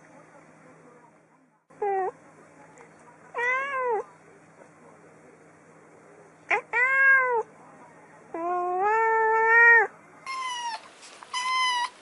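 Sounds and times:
cat meowing: 3.4s - 4.0s, 6.5s - 7.5s, 8.4s - 12.0s
kitten mewing: 6.5s - 7.5s, 8.3s - 12.0s.

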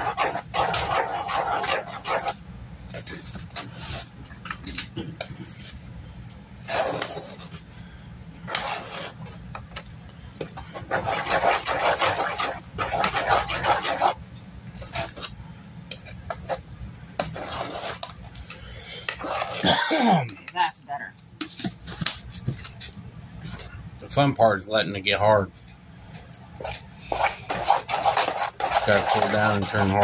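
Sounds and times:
spoon stirring and scraping a pot: 0.0s - 4.6s, 5.2s - 5.8s, 6.6s - 7.7s, 8.4s - 9.7s, 10.4s - 19.7s, 21.4s - 23.8s, 26.6s - 30.0s
steady low hum: 0.0s - 30.0s.

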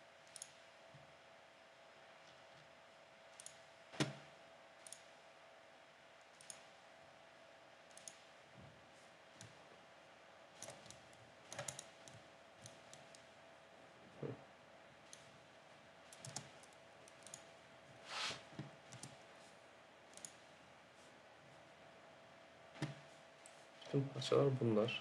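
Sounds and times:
faint steady hum: 0.0s - 25.0s
computer mouse and keyboard clicks: 0.2s - 0.6s, 3.3s - 4.2s, 4.8s - 5.1s, 6.3s - 6.7s, 7.8s - 8.3s, 10.6s - 13.3s, 16.1s - 17.5s, 18.6s - 19.2s, 20.1s - 20.4s.

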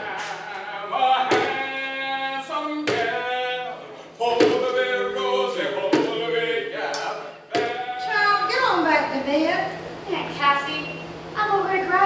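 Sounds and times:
voices singing slow song: 0.0s - 8.8s
thumping beat: 1.2s - 1.8s, 2.8s - 3.3s, 4.4s - 4.8s, 5.8s - 6.3s, 7.5s - 8.0s.

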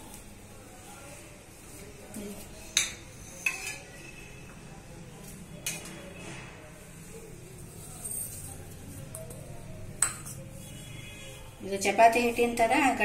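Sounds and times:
metal bowls clinking on steel: 2.7s - 4.1s.

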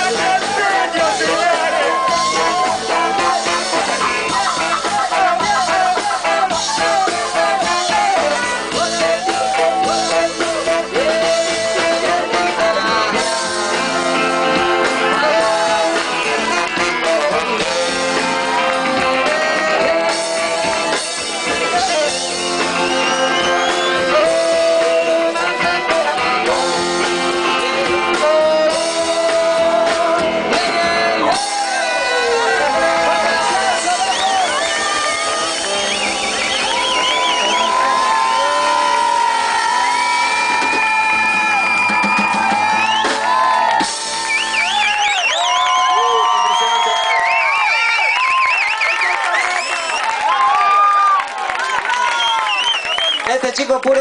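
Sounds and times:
person singing: 0.0s - 34.6s
trombone sliding notes: 0.0s - 40.2s
ska rock band playing: 0.0s - 53.6s.

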